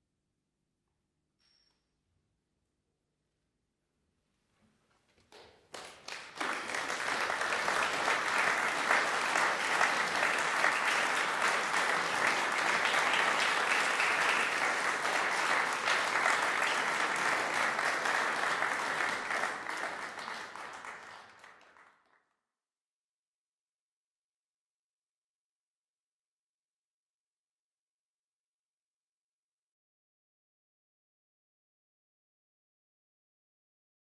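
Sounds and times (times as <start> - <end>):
crowd applauding: 5.3 - 22.2.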